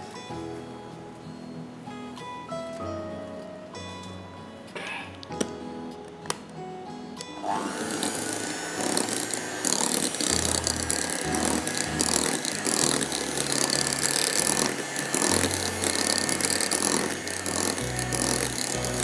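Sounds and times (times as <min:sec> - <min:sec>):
electric hand mixer whirring: 0:07.4 - 0:19.0.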